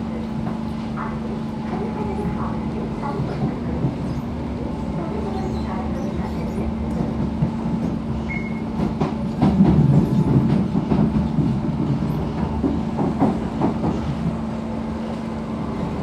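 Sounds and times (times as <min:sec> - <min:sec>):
train running drone: 0:00.0 - 0:16.0
train wheel clacks: 0:05.2 - 0:14.4.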